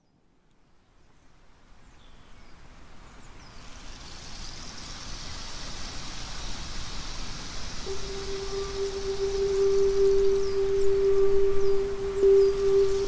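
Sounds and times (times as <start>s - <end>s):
forest ambience hiss: 0.6s - 13.0s
faint high bird chirps: 7.9s - 13.0s.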